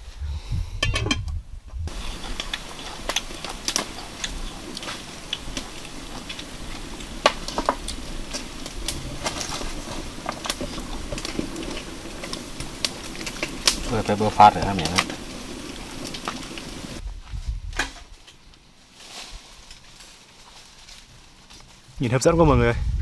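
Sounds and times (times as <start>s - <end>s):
low steady rumble: 0.0s - 17.7s
wood fire crackling: 1.8s - 22.4s.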